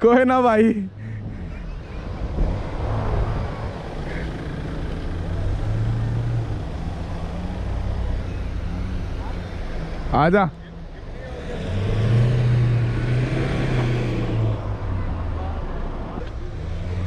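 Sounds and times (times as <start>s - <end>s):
engine running off-road: 0.0s - 17.0s.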